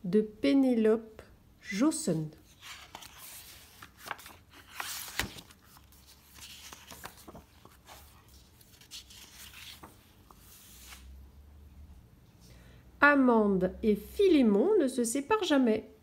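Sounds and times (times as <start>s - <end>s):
paper pages rustling: 2.4s - 11.2s.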